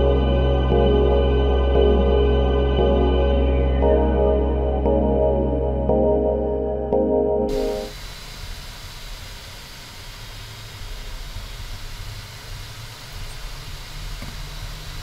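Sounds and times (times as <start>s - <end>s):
low rumble: 0.0s - 7.9s.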